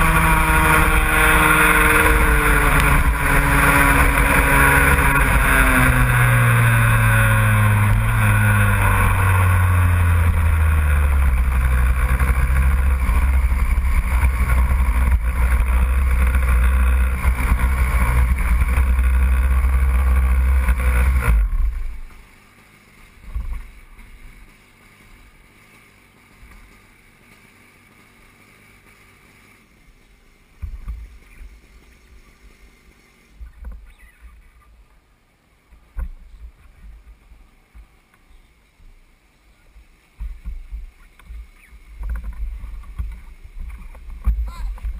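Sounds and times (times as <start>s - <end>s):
loud engine running: 0.0s - 29.7s.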